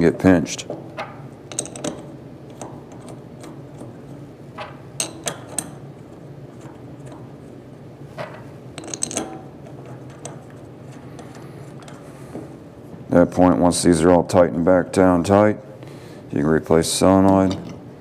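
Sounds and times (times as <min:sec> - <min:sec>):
metal bolts clicking and clinking: 0:01.0 - 0:07.4, 0:08.2 - 0:12.1, 0:17.3 - 0:17.9.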